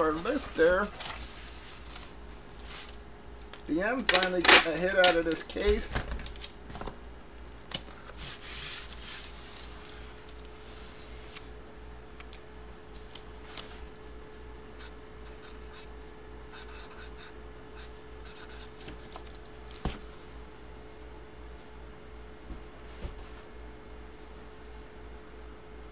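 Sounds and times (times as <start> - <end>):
paper and cardboard rustling: 0.0 - 3.0
faint steady hum: 0.0 - 25.9.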